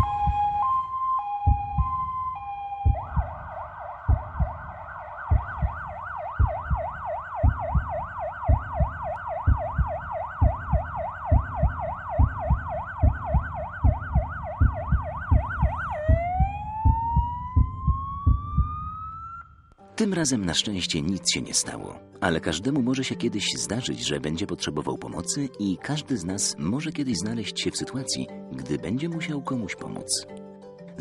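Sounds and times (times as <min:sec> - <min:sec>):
low thumps: 0:00.0 - 0:19.6
ambulance siren: 0:00.0 - 0:19.7.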